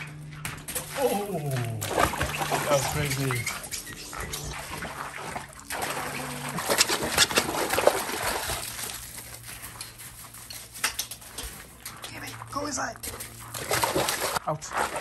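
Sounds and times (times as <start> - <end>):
dog splashing in water: 0.4 - 9.5, 13.4 - 15.0.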